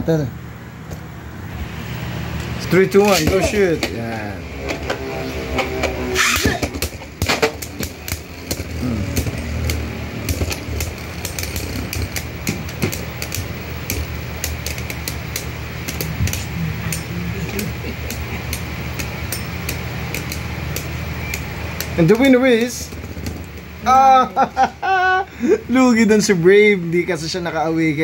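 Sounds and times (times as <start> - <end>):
spinning tops whirring: 1.8 - 24.8
spinning tops clicking together: 6.1 - 23.8.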